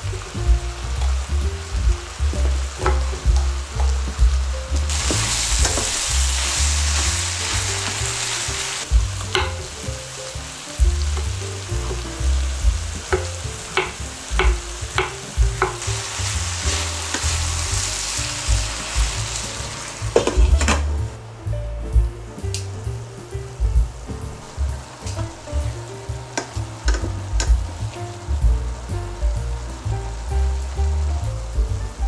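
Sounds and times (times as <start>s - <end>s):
food sizzling in a frying pan: 0.0s - 21.2s, 22.6s - 32.0s
sharp taps against a pan: 2.4s - 4.4s, 9.2s - 10.0s, 12.8s - 15.9s, 17.1s - 17.4s, 20.1s - 20.9s, 26.4s - 27.6s.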